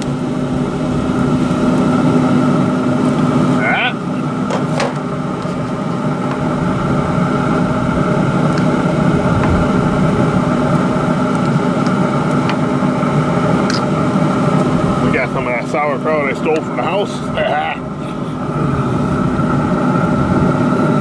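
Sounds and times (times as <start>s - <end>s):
grill fan whirring hum: 0.0s - 21.0s.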